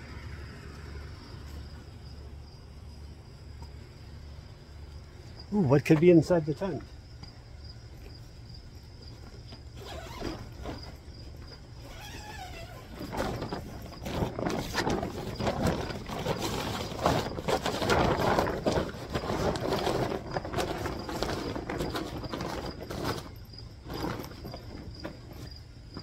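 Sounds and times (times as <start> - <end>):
crickets chirring: 0.0 - 26.0
plastic tarp rustling and crinkling: 9.1 - 26.0.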